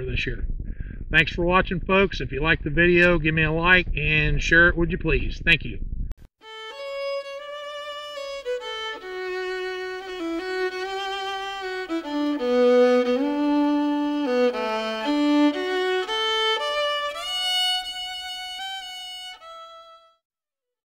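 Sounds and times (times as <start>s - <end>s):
fiddle playing a melody: 6.4s - 20.2s.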